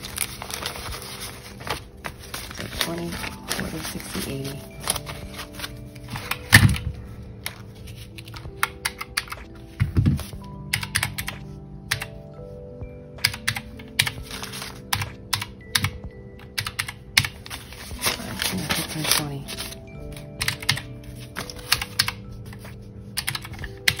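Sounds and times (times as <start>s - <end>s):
quiet background music: 0.0s - 24.0s
calculator keys clicking: 8.2s - 9.5s, 10.7s - 12.1s, 13.2s - 17.5s, 18.5s - 22.6s, 23.2s - 24.0s.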